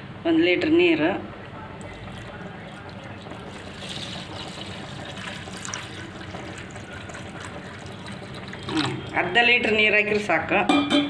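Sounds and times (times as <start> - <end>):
water pouring into metal bowl: 1.8 - 10.3.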